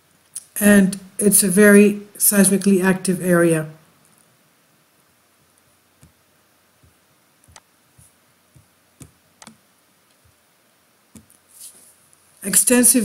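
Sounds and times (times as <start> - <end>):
computer mouse clicking: 7.4 - 7.7, 8.6 - 10.2.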